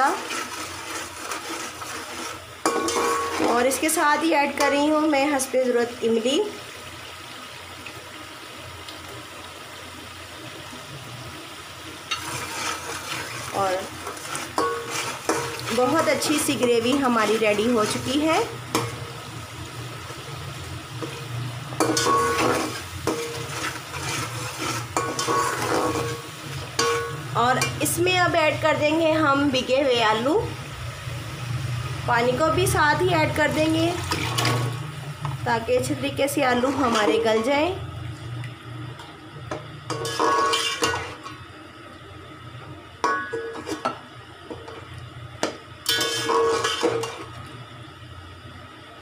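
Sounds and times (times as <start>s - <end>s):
fork scraping pot: 0.0s - 3.6s, 12.1s - 18.0s, 21.9s - 26.2s, 36.5s - 37.4s, 39.9s - 41.3s
gravy sizzling: 0.0s - 49.0s
pot ringing: 2.6s - 3.6s, 14.6s - 17.1s, 21.8s - 23.4s, 25.0s - 27.8s, 39.9s - 41.1s, 43.0s - 43.7s, 45.8s - 47.1s.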